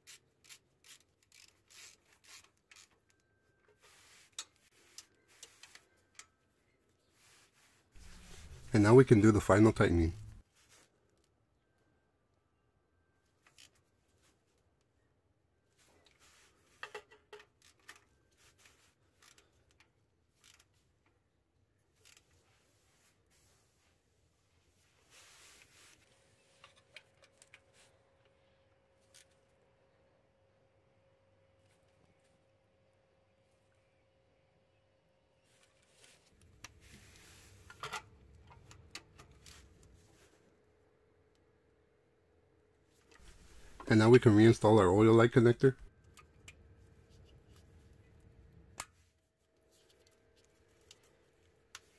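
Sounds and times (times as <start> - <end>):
rustling: 7.0 - 10.9, 43.0 - 44.0.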